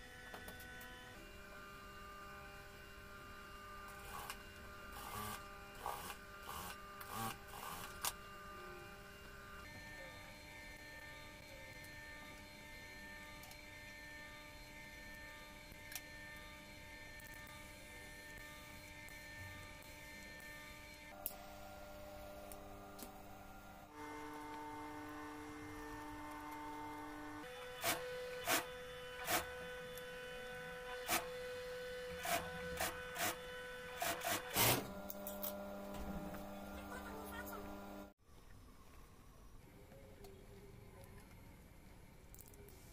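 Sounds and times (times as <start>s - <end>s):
sewing machine stitching: 32.2s - 34.9s.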